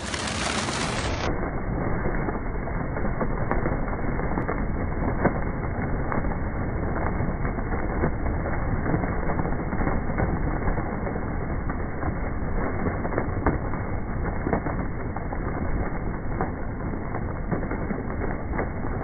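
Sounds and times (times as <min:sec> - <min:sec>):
pigeon wings flapping: 0:00.0 - 0:01.3.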